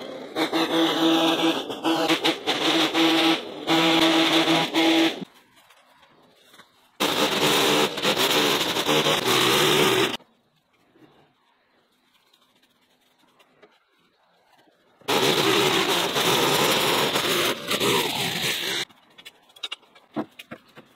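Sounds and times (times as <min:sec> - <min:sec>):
small engine running: 0:00.0 - 0:05.3, 0:07.0 - 0:10.2, 0:15.1 - 0:18.9.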